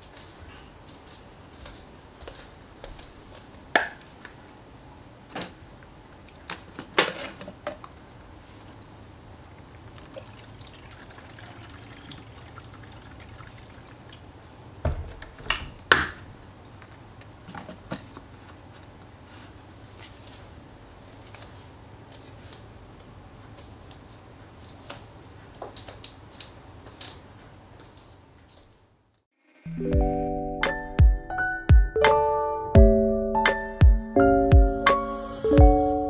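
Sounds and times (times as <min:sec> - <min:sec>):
water pouring from plastic bottle: 0:09.9 - 0:14.2.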